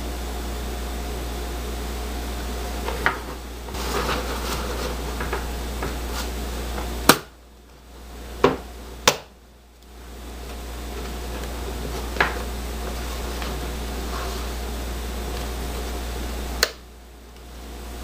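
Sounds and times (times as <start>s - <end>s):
steady background hum: 0.0s - 18.0s.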